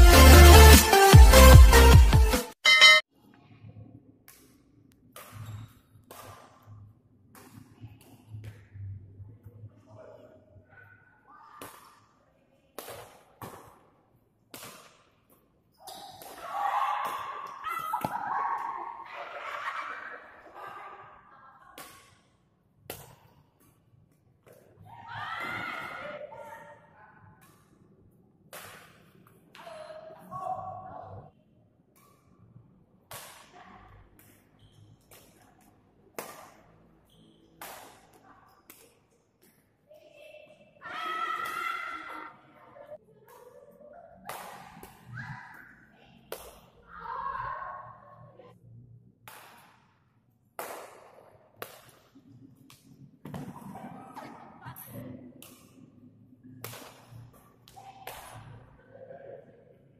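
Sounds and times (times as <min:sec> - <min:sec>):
rackets hitting shuttlecock: 0:04.3 - 0:06.7, 0:14.5 - 0:18.3, 0:28.5 - 0:29.6, 0:34.2 - 0:36.6, 0:37.6 - 0:39.7, 0:44.2 - 0:45.7, 0:46.3 - 0:46.7, 0:49.2 - 0:53.6, 0:56.6 - 0:58.6.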